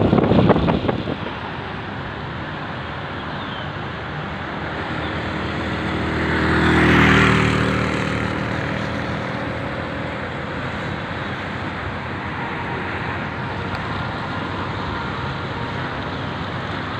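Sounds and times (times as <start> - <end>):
street noise: 0.0 - 16.9
motorcycle passing: 4.1 - 16.9.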